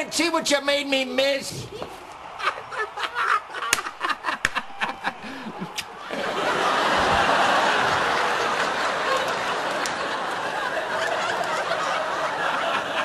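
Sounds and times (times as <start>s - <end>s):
studio audience laughing: 1.7s - 13.0s
sharp smacks: 3.7s - 4.6s.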